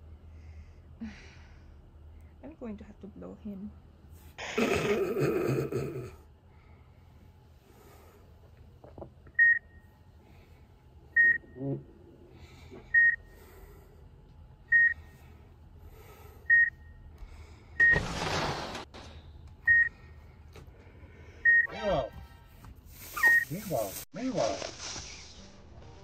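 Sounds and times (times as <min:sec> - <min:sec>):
heart-rate monitor beeping: 0:09.3 - 0:09.9, 0:11.1 - 0:11.8, 0:12.9 - 0:13.4, 0:14.7 - 0:15.1, 0:16.4 - 0:17.1, 0:19.6 - 0:20.0, 0:21.4 - 0:22.4.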